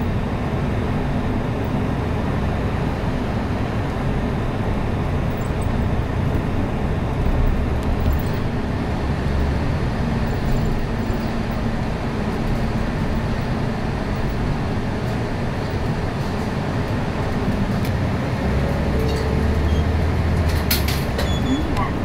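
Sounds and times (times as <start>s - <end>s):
bus engine hum: 0.0s - 22.0s
road noise: 0.0s - 22.0s.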